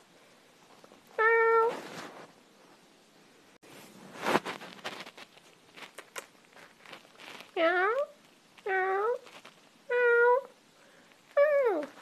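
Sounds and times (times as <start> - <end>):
faint rustling: 0.0 - 12.0
cat meowing: 1.2 - 1.8, 7.6 - 9.2, 9.9 - 10.6.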